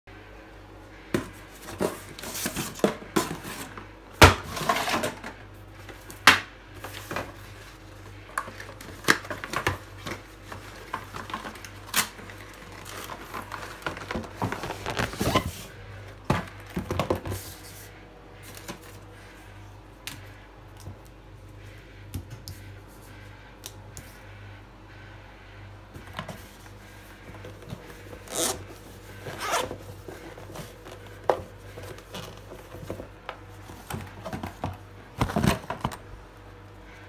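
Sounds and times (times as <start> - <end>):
low steady hum: 0.1 - 37.0
cardboard rustling: 6.8 - 19.3, 26.2 - 36.1.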